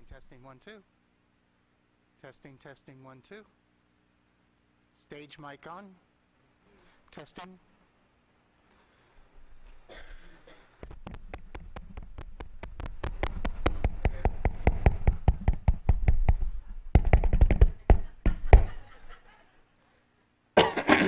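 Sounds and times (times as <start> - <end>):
fingertips tapping on microphone: 10.8 - 18.8.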